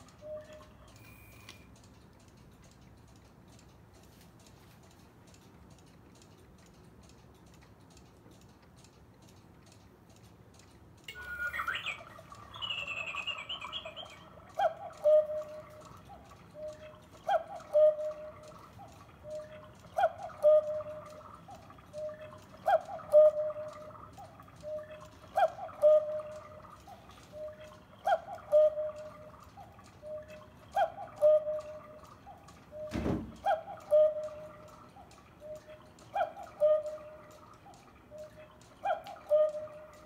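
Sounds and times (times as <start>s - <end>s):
electronic cuckoo call: 0.0s - 1.7s, 11.1s - 40.0s
clock ticking: 0.0s - 40.0s.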